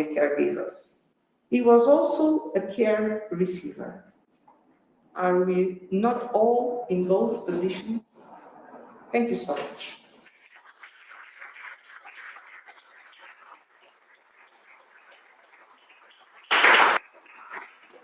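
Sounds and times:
faint audience applause: 16.5 - 18.0.

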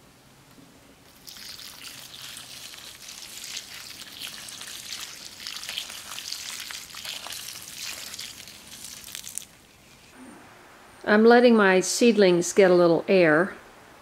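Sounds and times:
water splashing onto plants and soil: 1.1 - 9.6.

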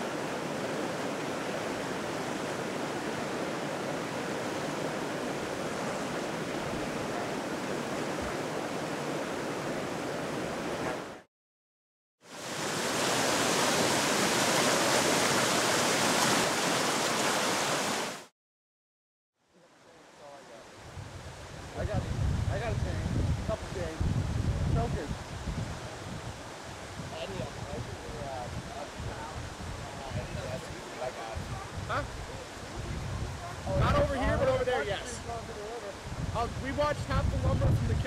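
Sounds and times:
floodwater rushing: 0.0 - 11.3, 12.3 - 18.3.

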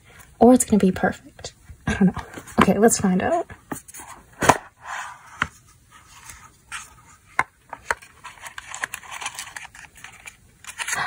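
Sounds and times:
paper rustling: 3.7 - 11.0.

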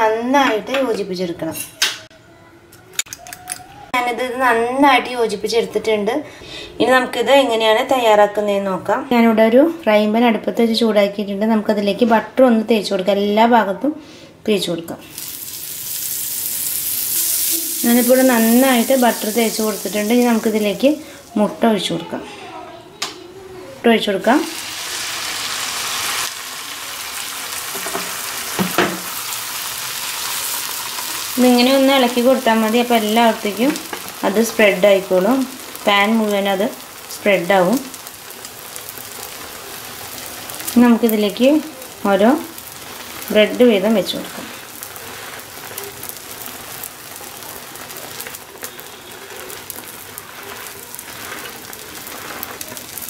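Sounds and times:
egg sizzling in frying pan: 15.0 - 21.6, 24.3 - 53.0.

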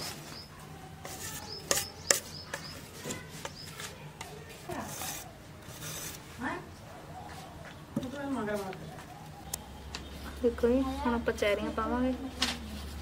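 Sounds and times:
batter being scraped: 0.0 - 6.5.

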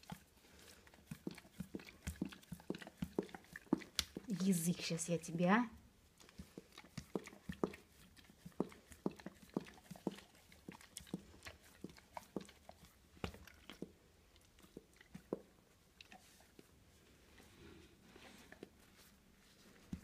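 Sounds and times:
dog licking lips: 0.0 - 5.0, 6.2 - 16.8.

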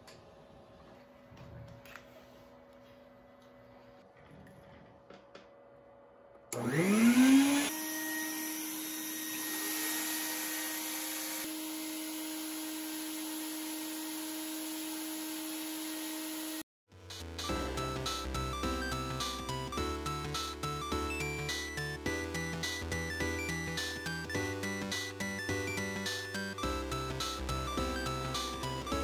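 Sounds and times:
shop vacuum motor whining: 6.4 - 16.6
music: 16.9 - 29.0.

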